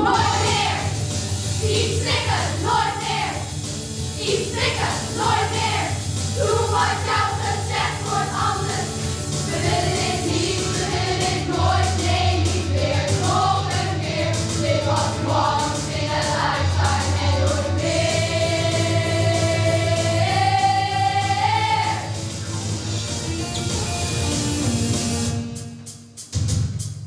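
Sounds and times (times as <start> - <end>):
youth choir singing: 0.0 - 3.5, 4.2 - 22.2
instrumental accompaniment: 0.0 - 27.0.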